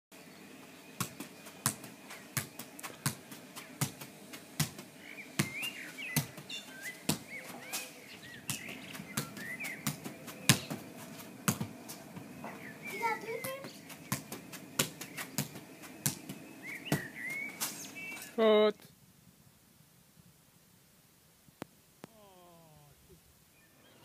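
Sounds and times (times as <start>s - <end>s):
small birds chirping: 0.2s - 18.9s, 22.0s - 24.0s
football thuds: 0.9s - 17.7s.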